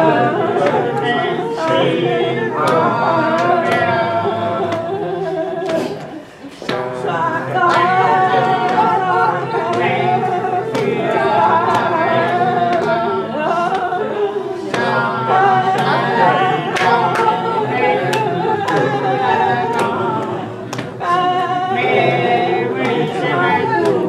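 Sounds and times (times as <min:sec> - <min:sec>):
steady beat: 0:00.0 - 0:14.0
person singing with music: 0:00.0 - 0:24.0.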